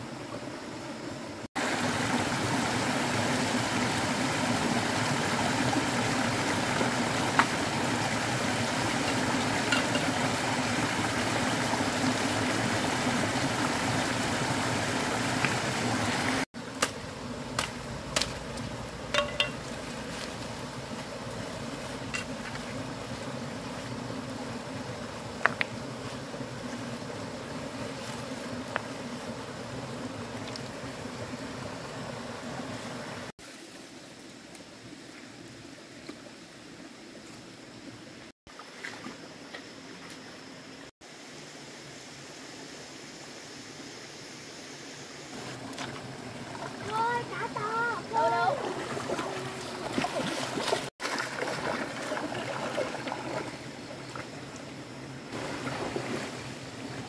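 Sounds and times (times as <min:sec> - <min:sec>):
stream water splashing over rocks: 0:01.5 - 0:35.5, 0:45.3 - 0:57.0.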